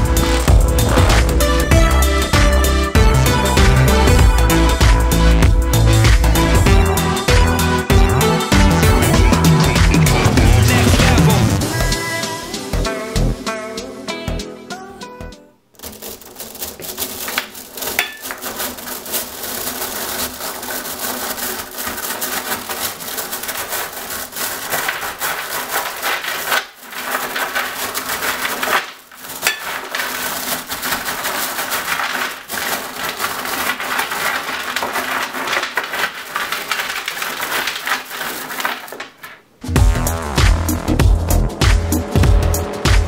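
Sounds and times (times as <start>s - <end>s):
magnets and ball bearings clattering: 15.8s - 39.6s.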